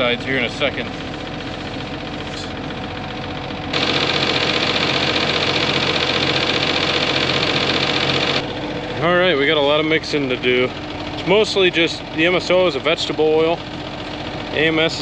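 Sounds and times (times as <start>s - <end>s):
engine running: 0.0s - 15.0s.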